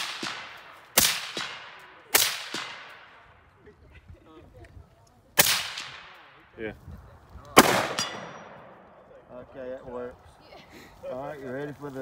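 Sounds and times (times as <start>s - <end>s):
rifle shots echoing: 0.0s - 3.2s, 5.4s - 6.4s, 7.6s - 9.0s.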